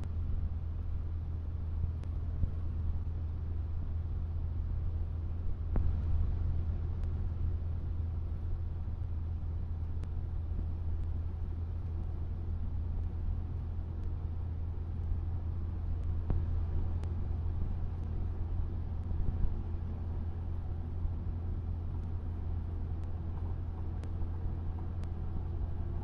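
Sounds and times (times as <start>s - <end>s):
propeller plane engine droning: 0.0s - 26.0s
faint ticks: 2.0s - 2.2s, 9.9s - 11.2s, 22.9s - 25.8s.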